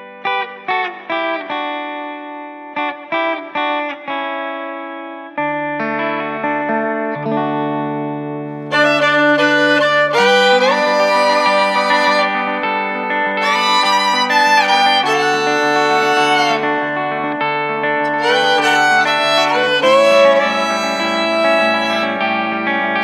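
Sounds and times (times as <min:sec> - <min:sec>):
instrumental music with plucked notes: 0:00.0 - 0:23.0.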